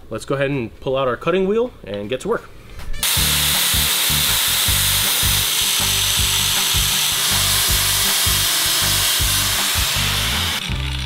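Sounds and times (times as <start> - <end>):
angle grinder cutting metal: 3.0 - 11.0
music with steady beat: 3.0 - 11.0.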